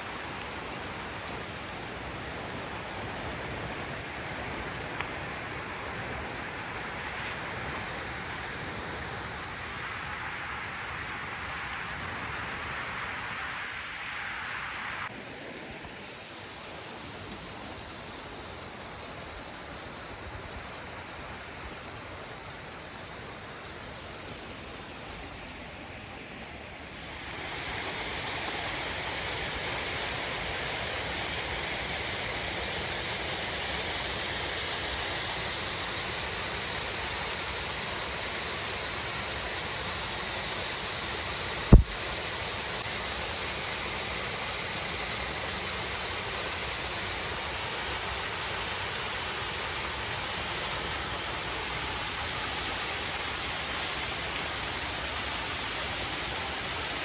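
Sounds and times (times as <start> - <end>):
steady rushing noise: 41.6 - 43.4.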